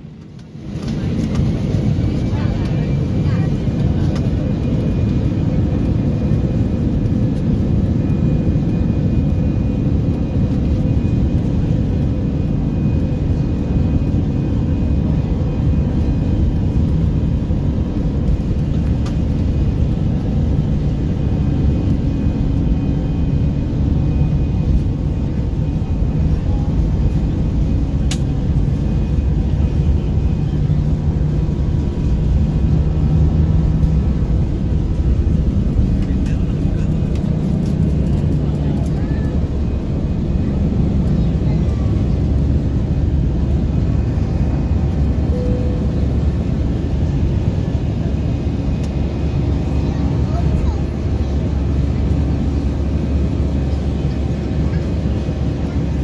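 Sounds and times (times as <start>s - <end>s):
jet engine rumble in cabin: 0.0s - 56.0s
faint hum: 12.1s - 53.6s.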